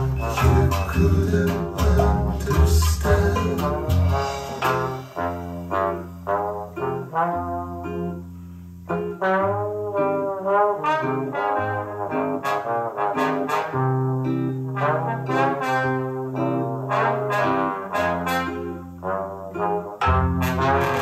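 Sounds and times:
music through loudspeakers: 0:00.0 - 0:06.2.

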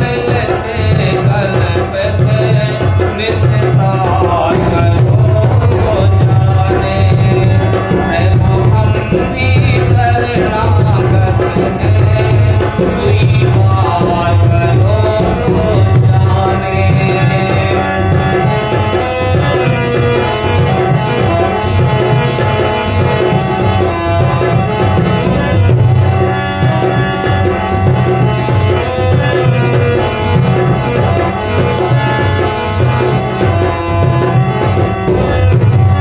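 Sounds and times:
man singing: 0:00.0 - 0:25.6
dholak drum rhythm: 0:00.0 - 0:36.0
harmonium melody: 0:00.0 - 0:36.0.

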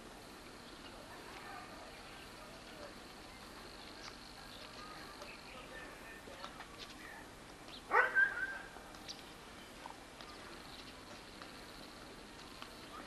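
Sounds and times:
small dog barking: 0:07.9 - 0:08.7.

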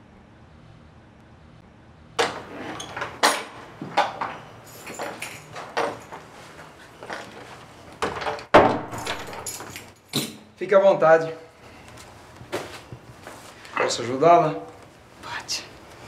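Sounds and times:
door clicks and knocks: 0:08.0 - 0:10.4.

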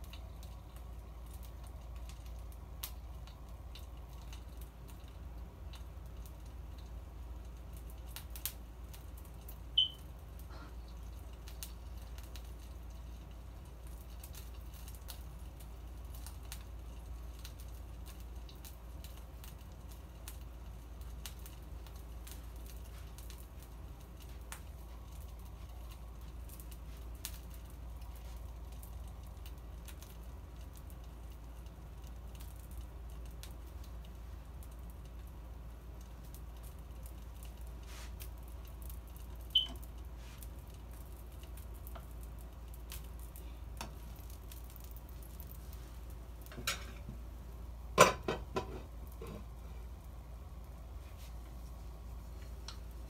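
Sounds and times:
food crackling on grill: 0:00.0 - 0:53.0.

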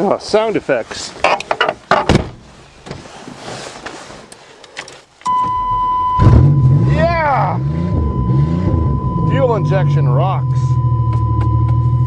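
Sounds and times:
sharp clicks and knocks: 0:01.2 - 0:03.0
car engine starting and running: 0:05.3 - 0:12.0
electronic warning tone: 0:05.3 - 0:12.0.

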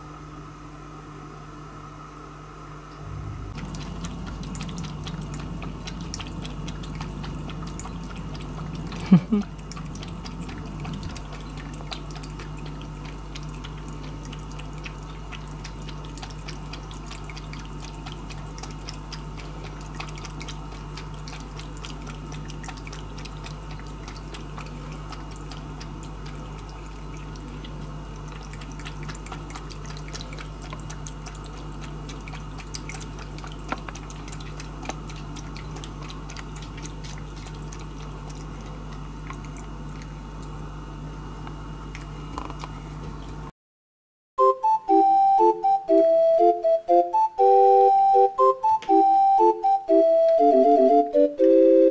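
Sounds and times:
steady low hum: 0:00.0 - 0:43.5
cat lapping water from bowl: 0:03.1 - 0:43.5.

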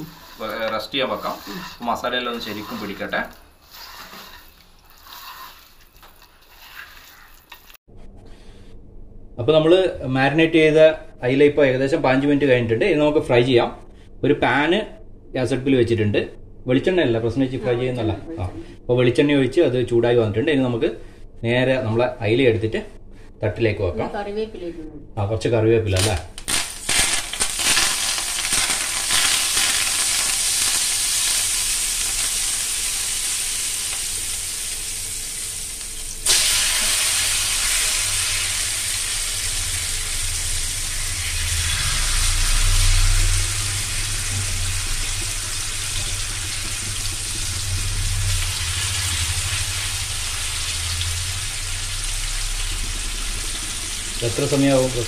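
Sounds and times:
fish frying in oil: 0:00.0 - 0:07.8, 0:26.4 - 0:55.0.

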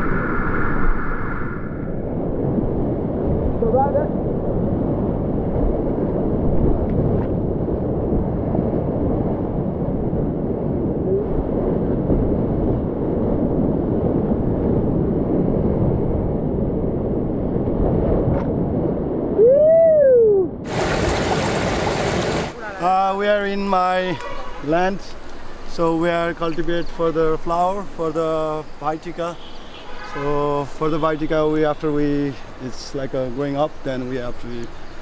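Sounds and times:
person whooping: 0:19.4 - 0:20.6
whitewater rapids roaring: 0:20.7 - 0:26.2.

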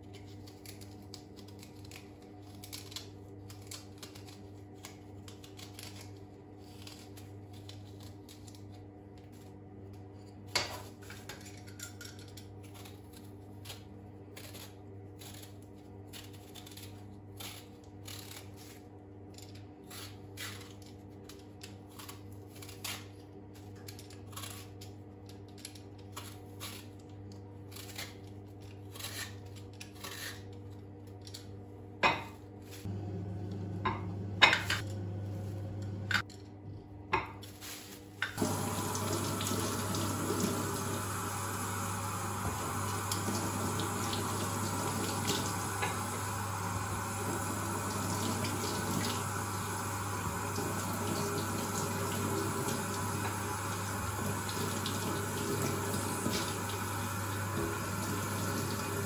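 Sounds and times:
knife scraping fruit: 0:00.0 - 0:31.5
low steady hum: 0:30.0 - 0:59.0.

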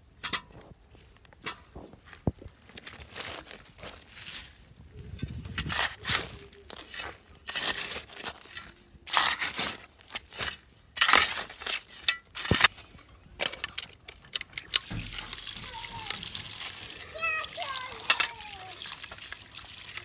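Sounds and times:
dry soil crunching: 0:00.0 - 0:13.3, 0:14.4 - 0:20.0
steel bowl clicks and knocks: 0:18.0 - 0:18.4.

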